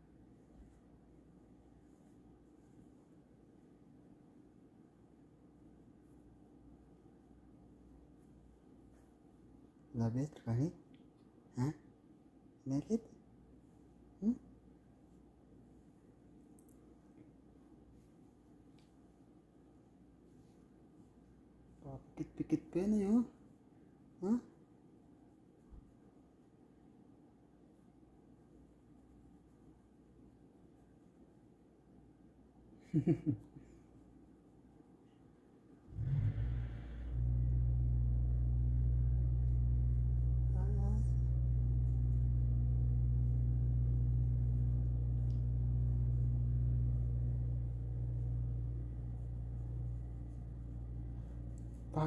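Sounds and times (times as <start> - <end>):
steady low hum: 35.9 - 52.0.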